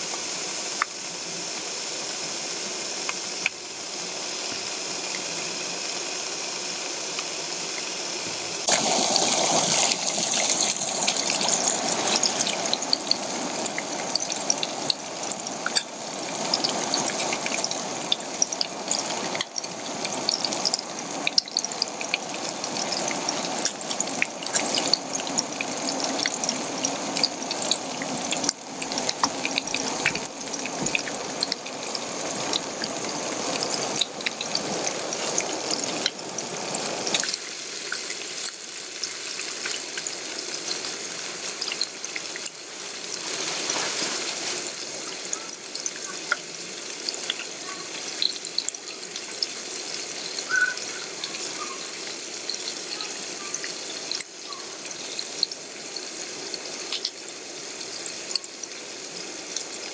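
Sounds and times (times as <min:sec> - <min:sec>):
food sizzling in oil: 0:00.0 - 0:59.9
oil crackling and spattering: 0:08.6 - 0:55.7.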